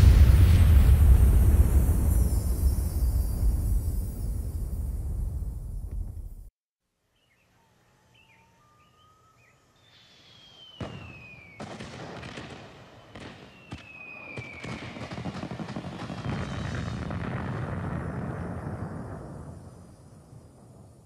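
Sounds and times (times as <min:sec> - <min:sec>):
firework bangs: 0:00.0 - 0:06.5, 0:10.6 - 0:21.0
firework chirps: 0:00.0 - 0:06.5, 0:09.8 - 0:21.0
firework crackling barrage: 0:00.0 - 0:06.5, 0:10.5 - 0:21.0
whistling firework shells: 0:00.0 - 0:06.5, 0:08.3 - 0:21.0.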